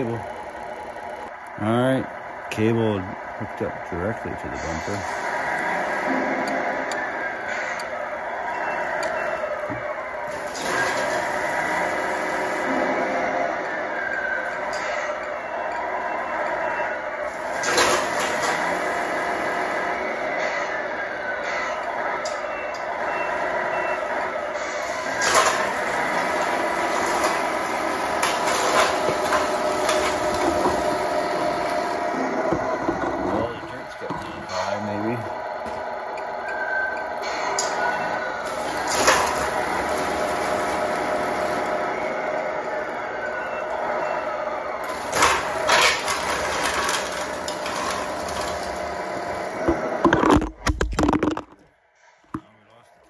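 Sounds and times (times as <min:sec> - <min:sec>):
electric motor and gearbox whining: 0:00.0 - 0:23.1, 0:23.8 - 0:51.6
clicks and clatter: 0:50.1 - 0:51.6.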